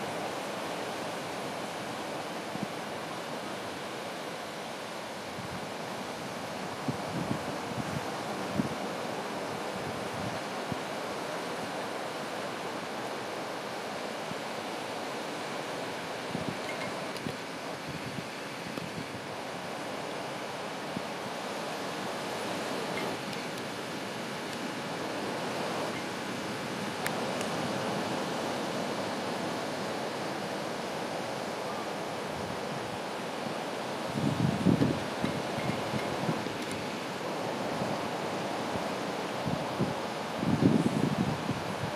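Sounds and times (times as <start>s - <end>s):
waves breaking: 0.0s - 41.9s
wind buffeting microphone: 5.3s - 8.8s, 34.0s - 41.9s.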